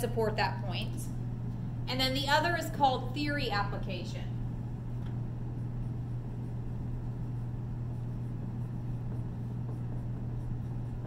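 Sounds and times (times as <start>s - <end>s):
steady low hum: 0.0s - 11.0s
marker scratching on whiteboard: 5.5s - 11.0s.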